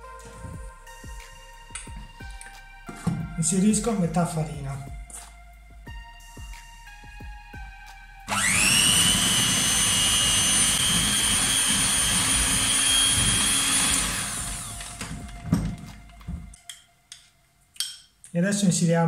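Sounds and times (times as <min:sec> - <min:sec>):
electric hand mixer whining: 0:08.3 - 0:16.4.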